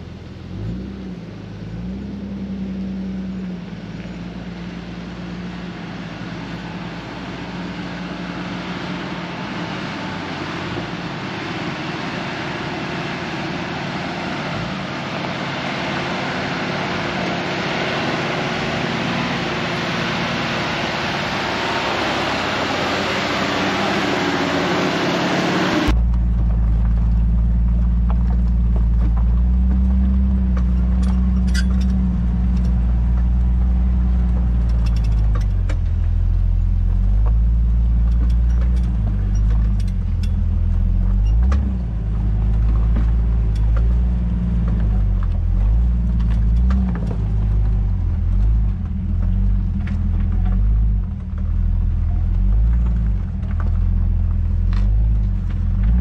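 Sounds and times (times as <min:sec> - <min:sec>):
off-road vehicle engine revving: 0:00.0 - 0:56.0
vehicle knocks and creaks: 0:25.9 - 0:56.0.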